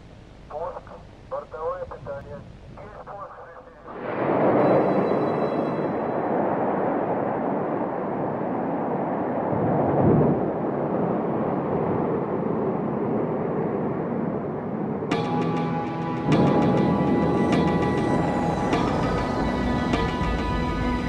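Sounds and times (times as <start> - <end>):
rocket engines rumbling: 0.0 - 15.1
music: 15.1 - 21.0.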